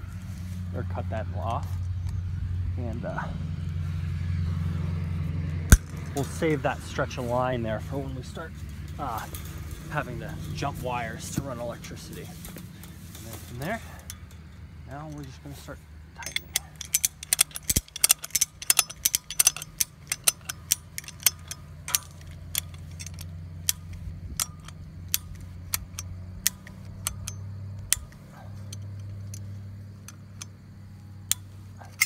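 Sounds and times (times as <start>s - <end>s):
wire strainer ratchet clicking: 5.7s - 7.6s, 12.7s - 32.0s.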